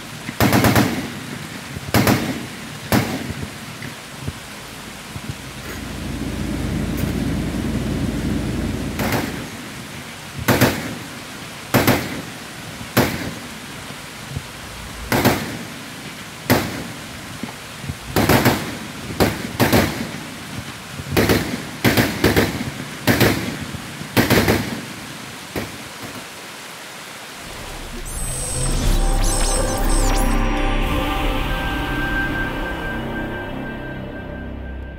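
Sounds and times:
rain hiss: 0.0s - 34.9s
low rumble: 4.6s - 10.0s, 14.2s - 15.2s, 27.4s - 34.9s.

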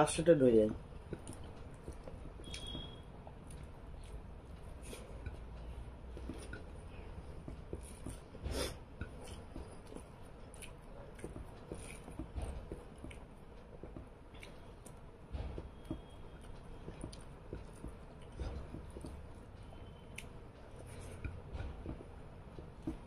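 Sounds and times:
fingers mixing rice: 0.0s - 15.2s
quiet chewing: 0.7s - 15.1s, 15.8s - 23.0s.

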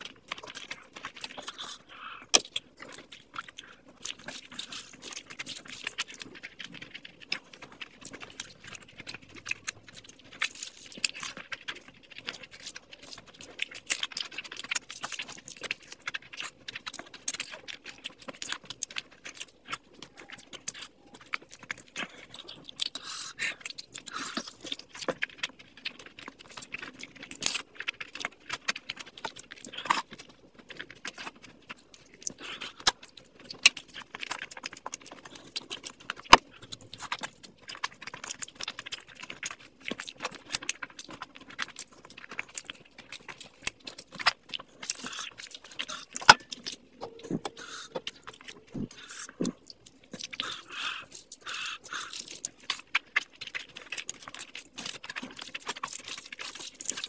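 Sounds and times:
person chewing: 0.0s - 57.0s
wet sticky squelches of rice: 0.0s - 57.0s
lip smacks: 39.9s - 57.0s.

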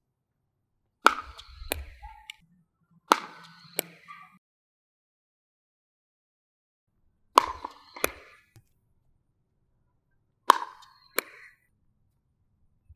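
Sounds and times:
paddle hitting ball: 1.0s - 2.4s, 3.1s - 4.1s, 7.4s - 8.7s, 10.5s - 11.5s.

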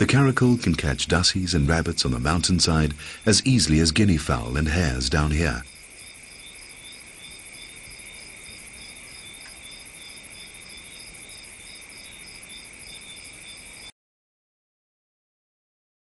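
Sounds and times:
crickets chirping: 0.0s - 13.9s.

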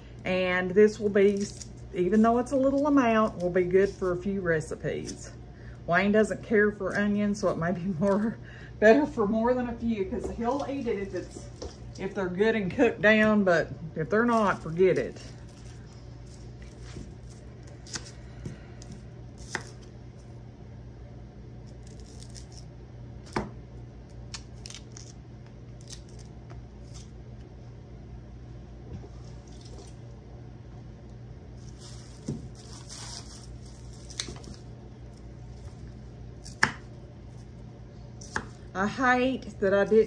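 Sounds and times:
steady low hum: 0.0s - 40.0s
onion skins rustling: 0.6s - 5.4s, 14.0s - 20.4s, 21.6s - 23.4s, 24.2s - 27.2s, 31.5s - 38.8s.

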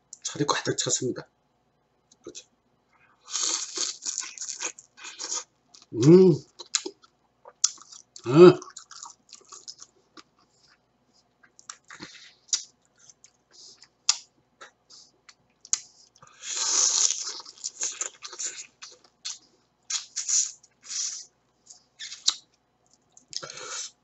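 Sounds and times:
crab shell cracking and crunching: 3.3s - 5.9s.

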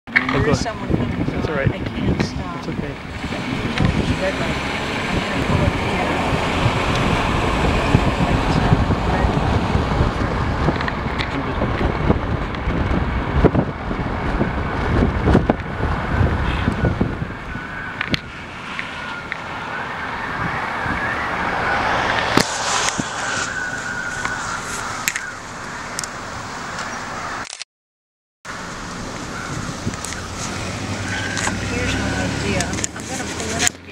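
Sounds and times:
road traffic passing: 0.1s - 27.5s, 28.5s - 33.9s
gusty wind buffeting microphone: 0.2s - 27.2s, 28.6s - 33.9s
distant siren wailing: 16.1s - 27.3s, 29.1s - 32.6s.

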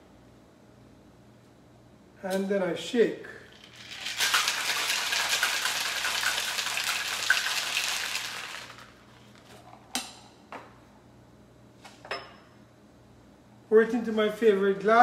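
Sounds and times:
ice rattling in cocktail shaker: 3.5s - 9.0s.

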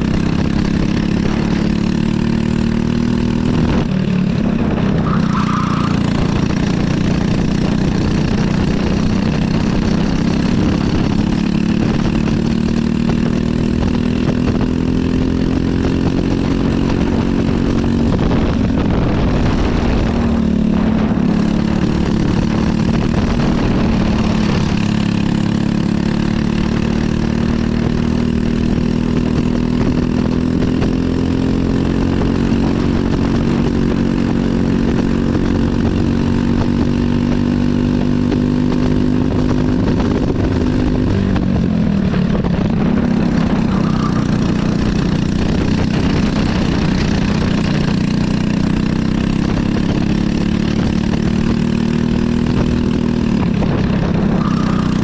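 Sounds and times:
kart engine revving: 0.0s - 55.0s.

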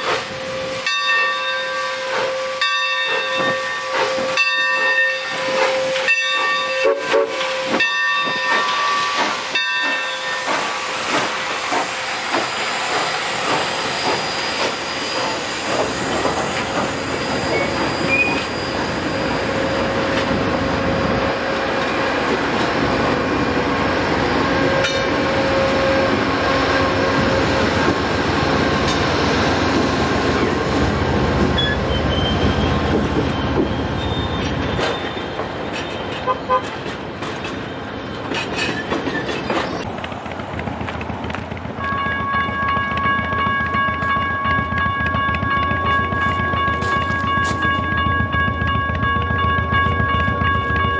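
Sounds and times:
steam locomotive chime whistle: 0.0s - 11.3s, 31.6s - 35.4s
train wheels on rails: 0.0s - 50.9s.

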